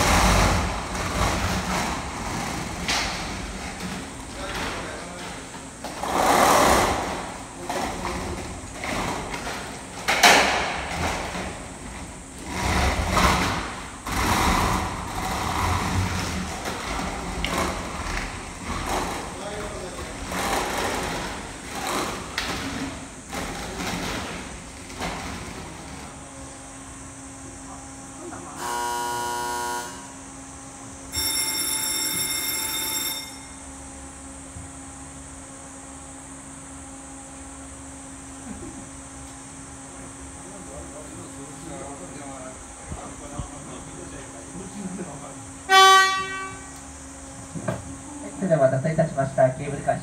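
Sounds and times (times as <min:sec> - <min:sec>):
low machinery hum: 0:00.0 - 0:50.0
departure bell ringing: 0:31.1 - 0:33.9.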